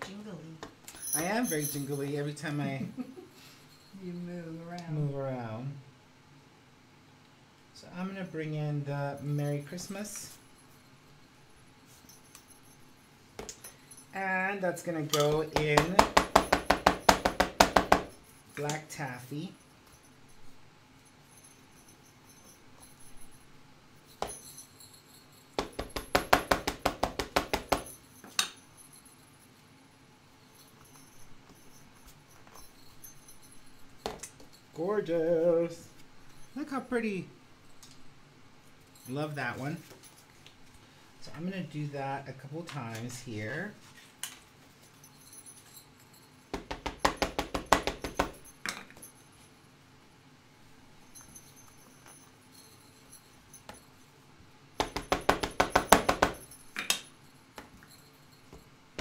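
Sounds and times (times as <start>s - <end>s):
ink pad tapping on stamp: 15.6s - 18.1s.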